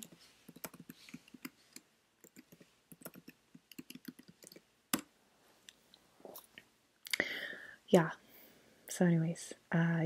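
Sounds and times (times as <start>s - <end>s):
laptop keys clicking: 0.0s - 5.1s.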